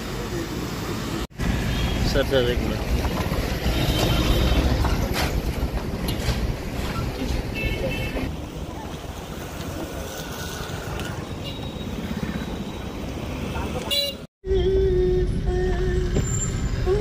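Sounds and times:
street noise: 0.0 - 17.0.

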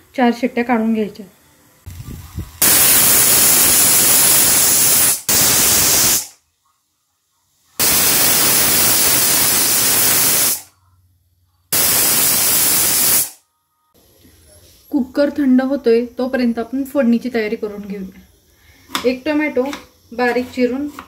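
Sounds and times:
pressure cooker steam hissing: 2.6 - 6.3, 7.8 - 10.7, 11.8 - 13.4.

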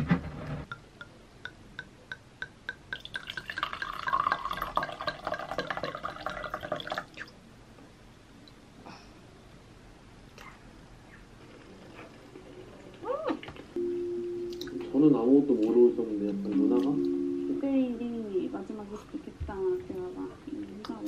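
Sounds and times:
wine glugging and splashing: 2.9 - 7.3.

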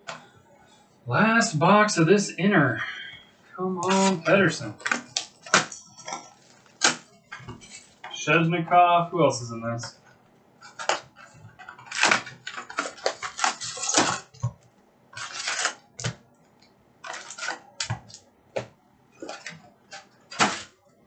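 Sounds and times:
card packs tapping and clicking: 3.8 - 5.8, 10.6 - 14.6, 17.0 - 20.7
plastic wrappers crinkling: 3.8 - 8.0, 10.6 - 16.1, 17.0 - 18.2, 19.2 - 20.7.

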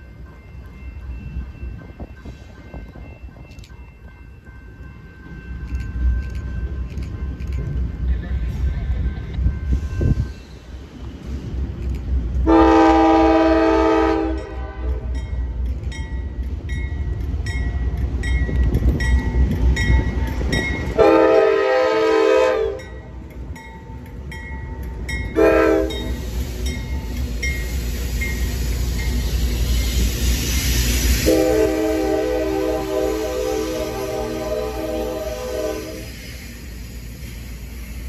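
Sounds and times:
train rumbling: 0.0 - 38.0
locomotive air horn blasts: 12.4 - 15.2, 21.0 - 22.9, 25.4 - 26.2, 31.2 - 36.1.

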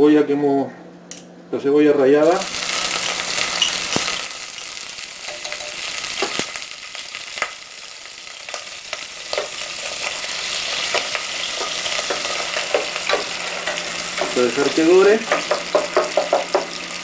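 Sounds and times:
onion sizzling in hot oil: 2.2 - 17.0
wooden spoon knocking on pot: 15.2 - 16.7.

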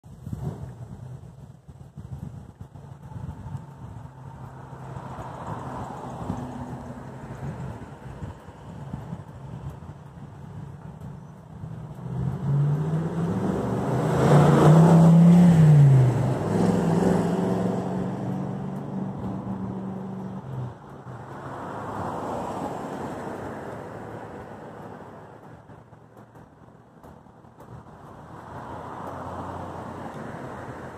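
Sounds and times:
vehicle engine passing by: 2.5 - 9.3, 11.6 - 26.5, 27.7 - 30.9.

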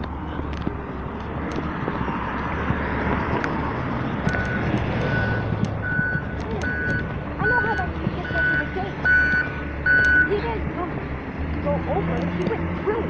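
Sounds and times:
bus engine and road noise: 0.0 - 13.0
high beeps: 4.3 - 10.3.

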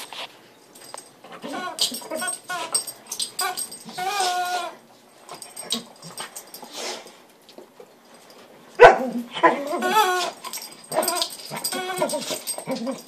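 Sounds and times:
squeaky toy squealing: 1.4 - 2.8, 3.4 - 4.8, 9.6 - 12.4.

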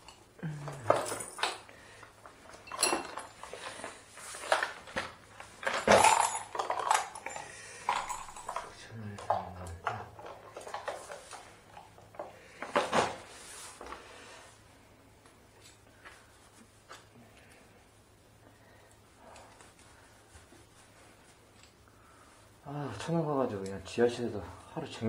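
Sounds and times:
metal hand tools clattering: 2.5 - 3.8, 5.6 - 8.8.

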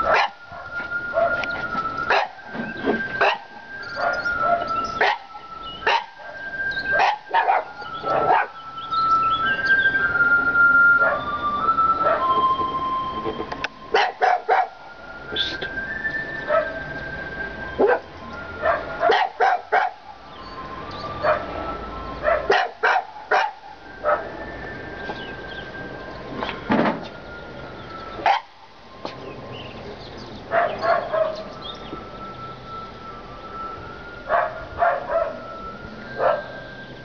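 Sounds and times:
dogs barking sharply: 0.0 - 1.4, 2.1 - 2.4, 3.2 - 8.6, 13.9 - 14.8, 18.6 - 20.0, 22.2 - 24.2, 28.2 - 28.5, 30.5 - 31.4, 34.3 - 35.4.

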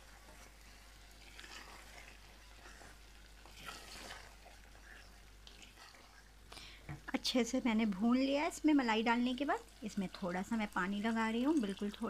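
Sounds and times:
faint sizzling: 0.0 - 12.0
spoon stirring curry in pot: 0.1 - 6.3.

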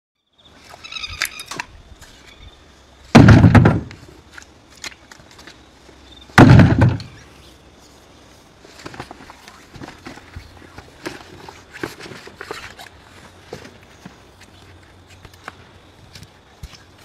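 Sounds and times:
loud deep thumps: 3.1 - 4.0, 6.4 - 7.2.

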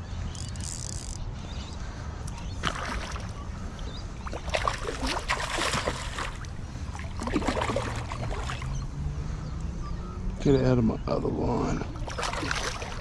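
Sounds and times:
water sloshing against a kayak: 2.2 - 9.1, 11.4 - 13.0.

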